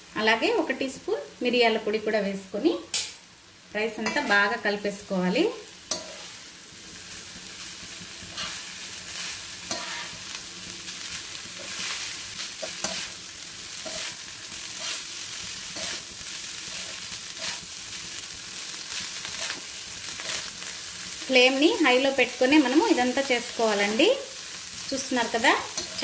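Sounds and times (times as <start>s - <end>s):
rice sizzling in wok: 0.0s - 26.0s
spatula scraping wok: 4.0s - 4.6s, 5.6s - 21.5s, 22.2s - 26.0s.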